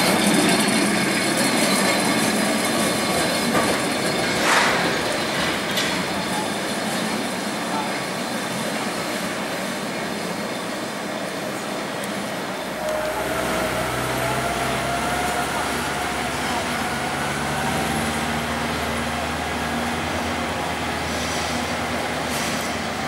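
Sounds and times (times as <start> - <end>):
city traffic noise: 0.0 - 23.0
tram running on rails: 0.0 - 23.0
thin whine rising in pitch: 12.6 - 20.6.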